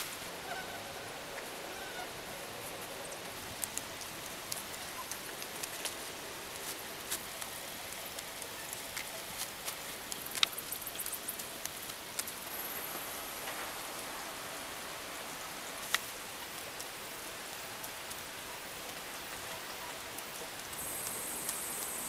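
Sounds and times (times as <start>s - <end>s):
hissing patter: 0.0s - 22.0s
faint high whine: 20.7s - 22.0s.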